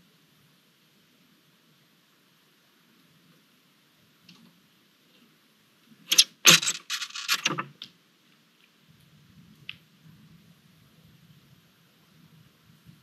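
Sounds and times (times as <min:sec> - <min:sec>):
talons scraping on metal roof: 0:06.1 - 0:07.7.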